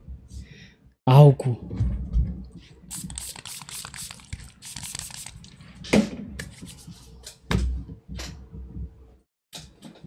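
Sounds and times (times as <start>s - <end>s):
hands rubbing together: 2.9s - 5.5s.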